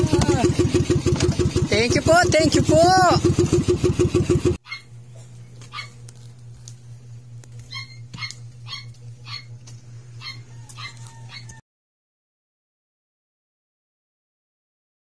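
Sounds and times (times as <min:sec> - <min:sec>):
low steady hum: 0:00.0 - 0:11.6
dog yipping: 0:04.6 - 0:04.9, 0:05.7 - 0:06.0, 0:07.6 - 0:09.5, 0:10.2 - 0:11.6.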